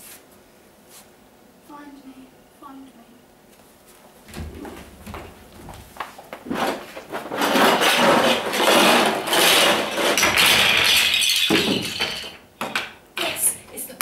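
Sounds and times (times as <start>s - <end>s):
toy blocks clattering onto platform: 6.6s - 13.0s.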